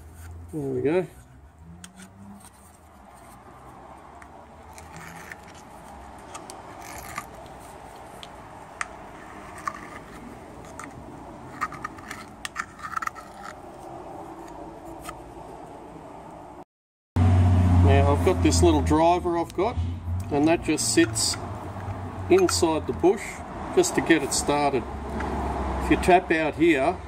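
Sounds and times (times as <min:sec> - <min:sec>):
metal arm being handled: 0:01.2 - 0:15.2
hand scraper scraping metal: 0:04.6 - 0:08.1, 0:09.1 - 0:13.7.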